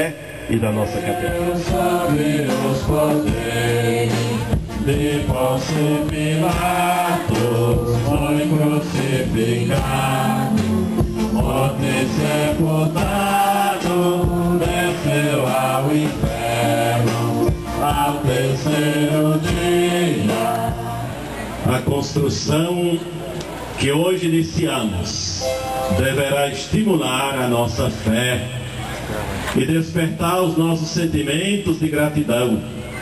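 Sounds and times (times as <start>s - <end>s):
congregation singing a hymn: 0.1s - 22.9s, 24.1s - 27.5s.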